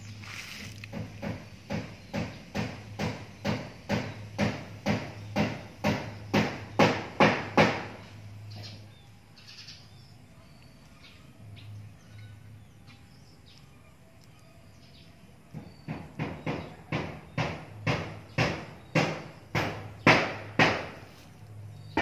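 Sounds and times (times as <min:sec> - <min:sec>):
sharp knocks: 0:00.9 - 0:08.1, 0:15.5 - 0:21.0.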